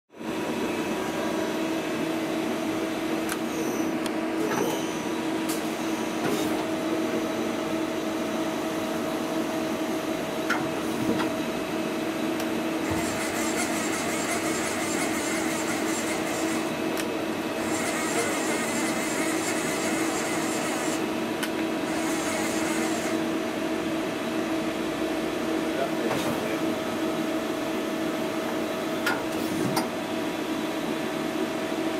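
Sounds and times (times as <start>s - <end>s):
lathe machine hum: 11.5s - 25.3s.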